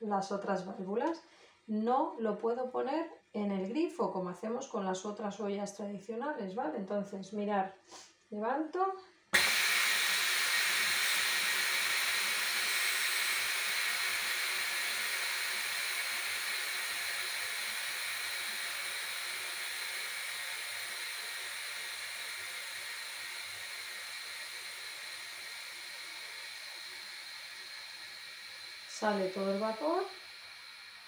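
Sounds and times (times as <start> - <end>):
steam hissing from pressure cooker: 9.4 - 31.0.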